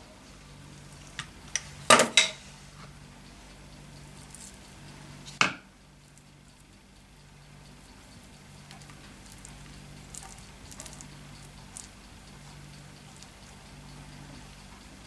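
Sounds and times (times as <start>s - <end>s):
steady low hum: 0.0s - 15.0s
hands rolling dough: 4.1s - 6.8s, 7.6s - 15.0s.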